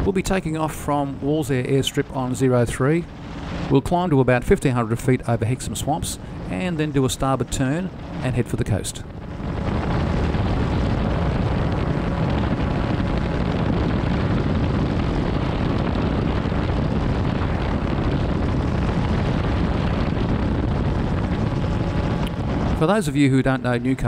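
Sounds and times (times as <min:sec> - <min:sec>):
aircraft engine and propeller droning: 0:00.0 - 0:24.0
wind rush: 0:00.0 - 0:24.0.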